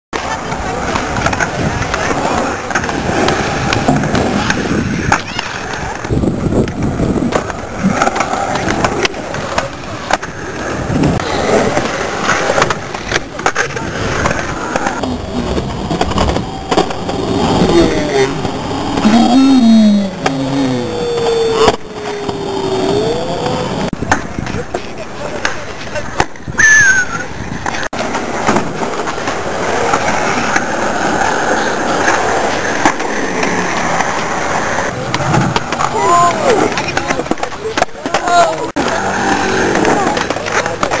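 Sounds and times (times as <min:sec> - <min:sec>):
skateboard wheels rolling on concrete: 0:00.1 - 0:41.0
skateboard clacks: 0:00.2 - 0:41.0
loud falling tone: 0:15.0 - 0:23.9.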